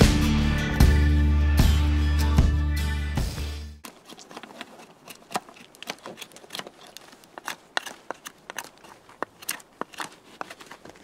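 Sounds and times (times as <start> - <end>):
knife carving wood: 3.8 - 11.0.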